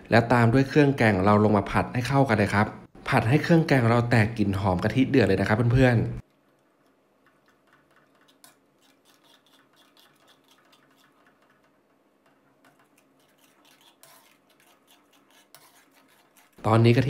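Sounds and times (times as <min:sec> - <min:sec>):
metal ladle scraping in wok: 0:13.0 - 0:16.6.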